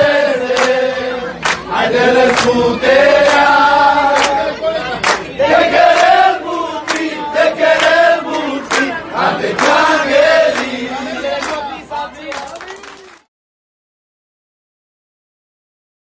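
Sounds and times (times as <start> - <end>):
crowd singing in chorus: 0.0 - 12.5
people clapping in time: 0.0 - 13.3.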